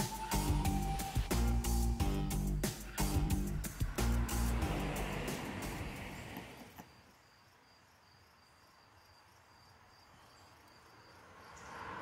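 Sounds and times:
high insect chirping: 0:02.7 - 0:12.0.

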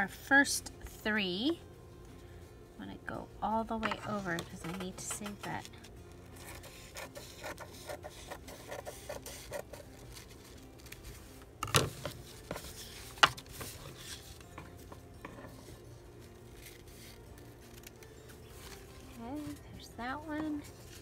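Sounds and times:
paper napkin rustling: 0:03.9 - 0:21.0
scissors snipping paper: 0:06.4 - 0:11.0.

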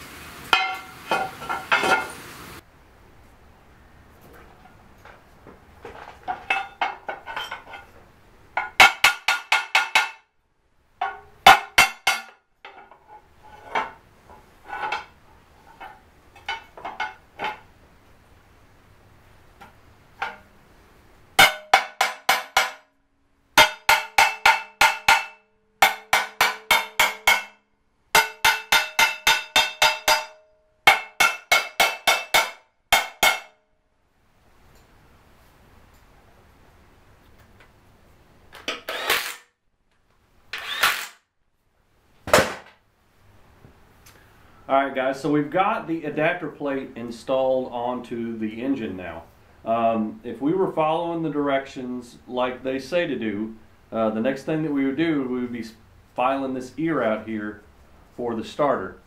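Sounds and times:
hammer tapping on metal: 0:08.6 - 0:10.3, 0:11.0 - 0:12.9, 0:21.4 - 0:22.9, 0:23.6 - 0:27.6, 0:28.2 - 0:33.6.

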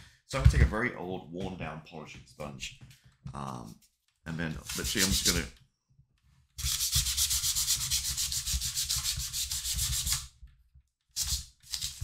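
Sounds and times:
sponge rubbing on plastic: 0:04.6 - 0:05.5, 0:06.6 - 0:10.3.

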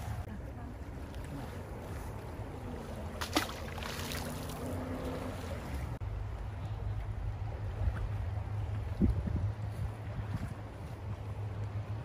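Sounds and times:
wind rumble: 0:04.2 - 0:12.0.

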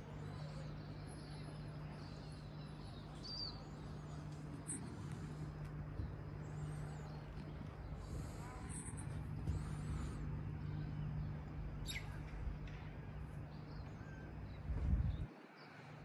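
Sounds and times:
faint bird chirps: 0:00.0 - 0:16.0
steady low hum: 0:00.0 - 0:16.0
low rumble: 0:03.5 - 0:15.3.

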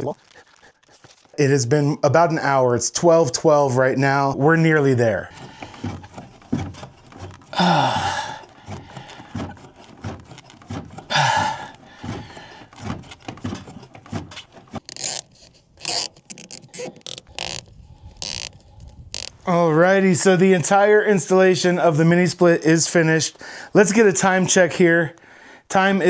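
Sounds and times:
man breathing heavily with grunt: 0:05.3 - 0:06.2, 0:07.4 - 0:09.7, 0:11.0 - 0:12.9.

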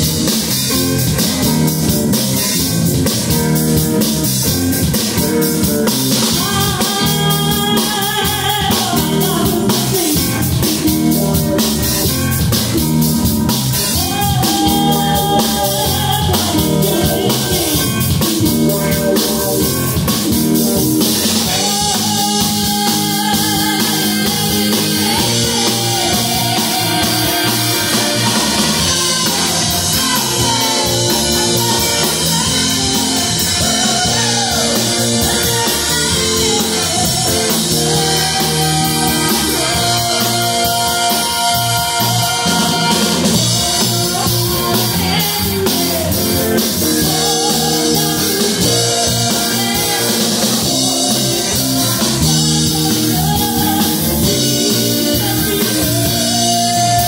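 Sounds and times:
bass guitar: 0:00.0 - 0:57.0
drum kit: 0:00.0 - 0:57.0
electric guitars: 0:00.0 - 0:57.0
woman singing into a microphone: 0:06.2 - 0:11.3, 0:13.9 - 0:18.2, 0:21.4 - 0:57.0.

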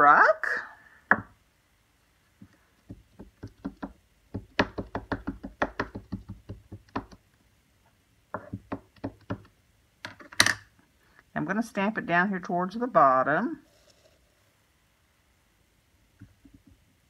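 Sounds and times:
rapid plastic knocks: 0:02.8 - 0:07.2, 0:08.4 - 0:09.6.

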